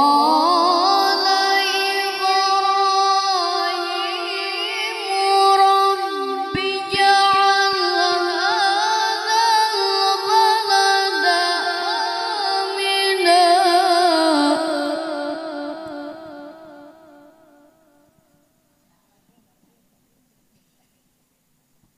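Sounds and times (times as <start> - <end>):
boy reciting melodically: 0.0 - 17.4.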